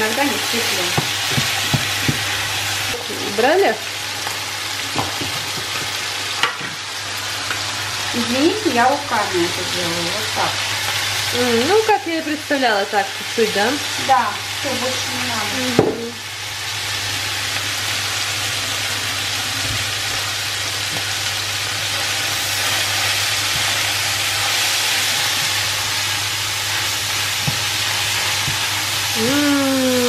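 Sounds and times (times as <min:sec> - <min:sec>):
beef sizzling in a frying pan: 0:00.0 - 0:29.2
spatula knocking in pan: 0:00.9 - 0:02.4.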